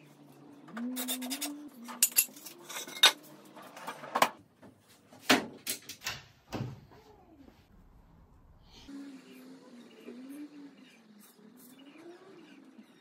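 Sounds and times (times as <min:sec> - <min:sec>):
drawer running on metal slides: 0:02.3 - 0:04.4
low hum: 0:07.7 - 0:11.8.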